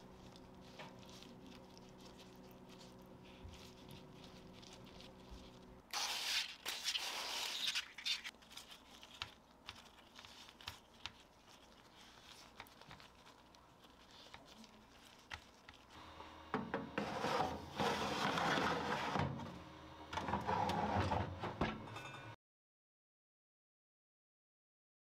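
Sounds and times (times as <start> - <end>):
rustling: 0.0 - 16.0.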